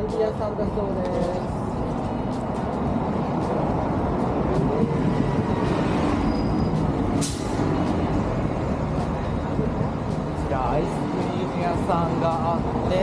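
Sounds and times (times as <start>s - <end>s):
bus engine running: 0.0s - 13.0s
air brakes hissing: 6.2s - 7.8s.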